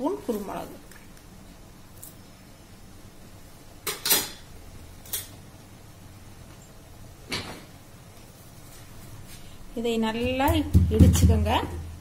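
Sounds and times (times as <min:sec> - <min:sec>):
kitchen utensils knocking and clattering: 0:03.9 - 0:04.4.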